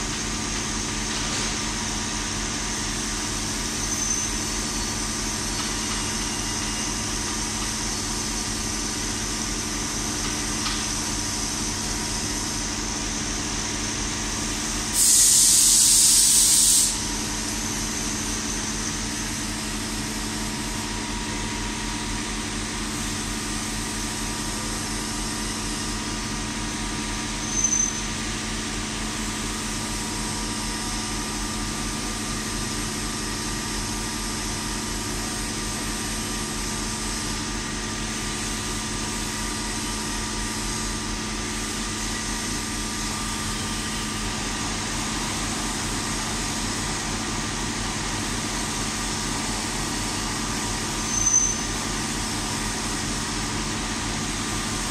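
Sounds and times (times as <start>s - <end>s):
brief high squeak: 3.8s - 5.0s, 5.6s - 7.1s, 27.3s - 28.3s, 50.9s - 51.8s
coolant hiss: 14.6s - 18.3s
loud hiss: 14.9s - 17.3s.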